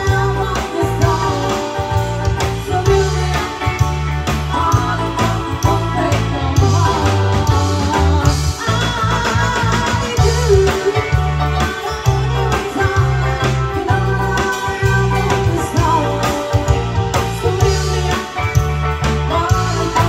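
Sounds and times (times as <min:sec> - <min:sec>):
bass guitar: 0:00.0 - 0:20.0
electric guitars: 0:00.0 - 0:20.0
keyboard: 0:00.0 - 0:20.0
steady drum beat: 0:00.0 - 0:20.0
woman singing: 0:00.0 - 0:20.0.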